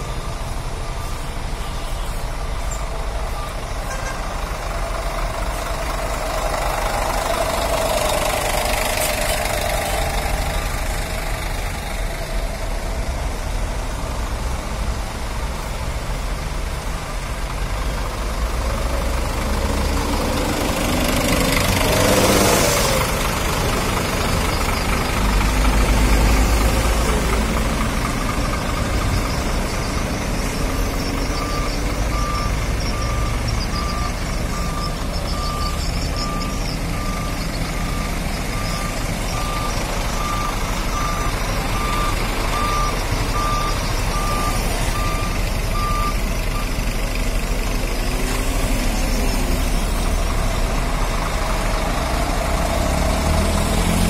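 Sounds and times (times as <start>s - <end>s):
reversing alarm beeping: 0.0s - 12.7s, 19.6s - 47.0s
diesel engine idling: 0.0s - 54.0s.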